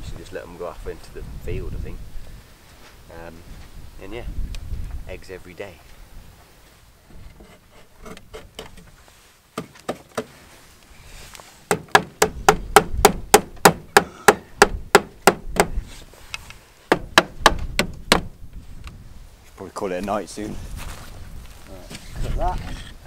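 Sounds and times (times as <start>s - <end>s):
hammer nailing wooden board: 11.7s - 15.8s, 16.9s - 18.3s.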